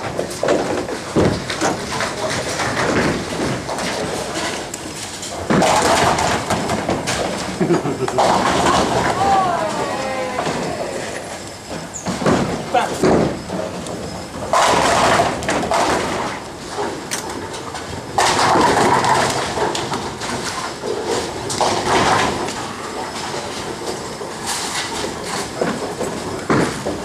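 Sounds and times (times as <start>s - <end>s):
bowling pins crashing: 0.0s - 4.7s, 5.3s - 27.0s
bowling balls rolling: 0.0s - 27.0s.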